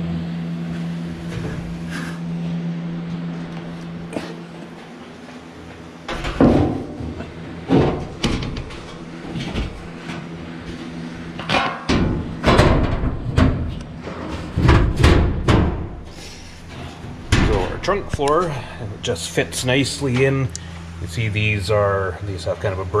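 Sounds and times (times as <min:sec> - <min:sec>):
sheet metal thumping and clanking: 0:06.1 - 0:09.8, 0:11.4 - 0:16.0, 0:17.3 - 0:18.2.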